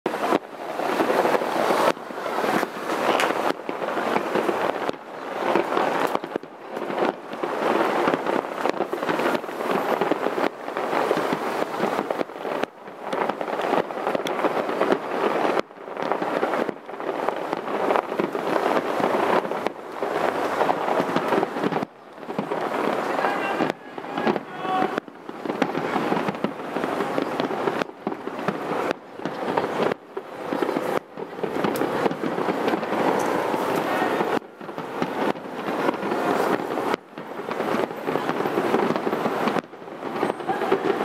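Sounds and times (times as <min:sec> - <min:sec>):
distant fireworks bangs and crackling: 0:00.1 - 0:41.0.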